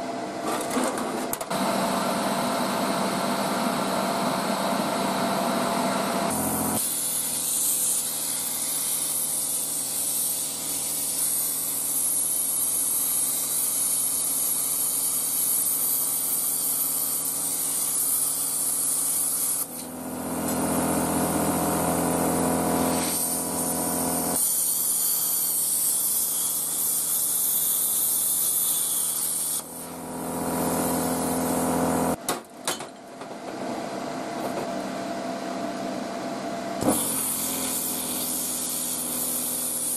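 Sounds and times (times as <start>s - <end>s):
compressor humming: 1.5s - 7.4s, 19.6s - 24.4s, 29.6s - 32.3s
plasma cutter hissing: 6.3s - 32.2s, 36.8s - 39.9s.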